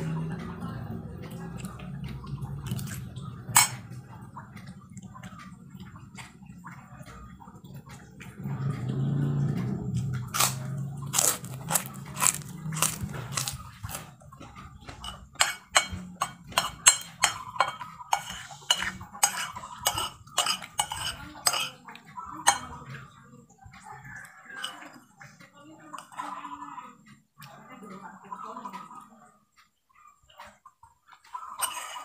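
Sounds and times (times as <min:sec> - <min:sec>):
metal spoon clinking on plate: 0:03.6 - 0:03.8, 0:15.0 - 0:21.8.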